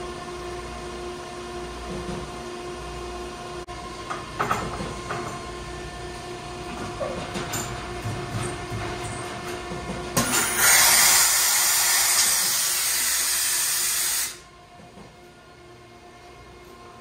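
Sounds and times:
compressed air hissing: 0:10.5 - 0:14.4.

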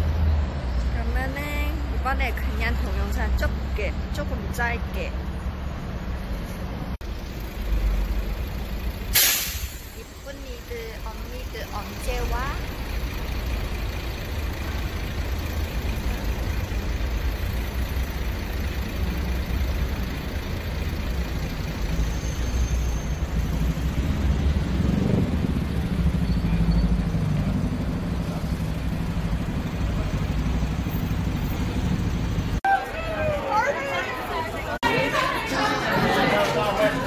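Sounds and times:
street traffic rumble: 0:00.0 - 0:37.0
vehicle passing close: 0:12.2 - 0:32.6.

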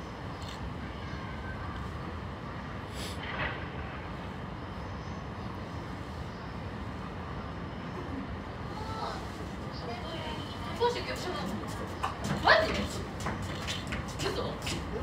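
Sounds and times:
distant city traffic rumble: 0:00.0 - 0:15.0
short hiss: 0:02.9 - 0:03.4.

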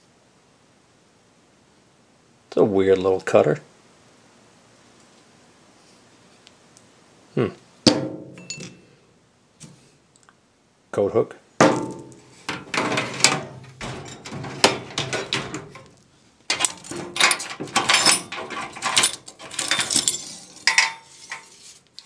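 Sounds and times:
steel parts clinking and rattling: 0:08.2 - 0:08.8, 0:11.7 - 0:21.7.

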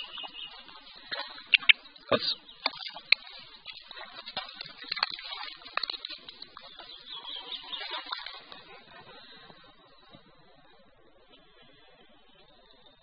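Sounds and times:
dry grass crackling and rustling: 0:00.0 - 0:12.0
sharp clicks: 0:01.2 - 0:01.8.

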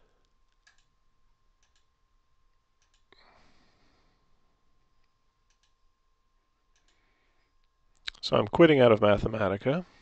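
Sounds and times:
faint computer mouse clicks: 0:02.8 - 0:03.1, 0:05.4 - 0:05.8, 0:06.7 - 0:07.0
soft breath: 0:03.1 - 0:04.6, 0:06.8 - 0:07.6.

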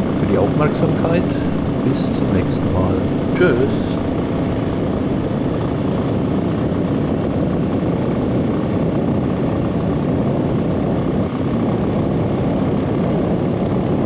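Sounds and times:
motorcycle engine running steadily: 0:00.0 - 0:05.7.

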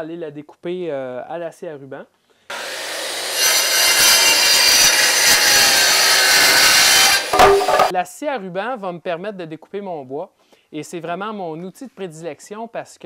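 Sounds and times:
circular saw cutting wood: 0:02.5 - 0:07.9.

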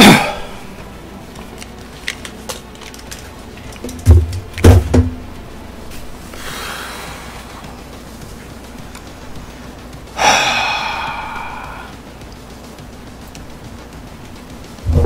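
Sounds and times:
loud dull thumps: 0:03.9 - 0:05.3
soft breathy hiss: 0:05.9 - 0:12.3.

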